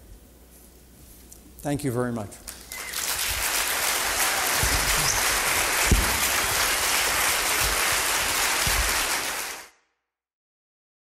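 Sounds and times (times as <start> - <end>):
audience applauding: 2.5 - 9.7
dull low thumps: 5.8 - 6.3.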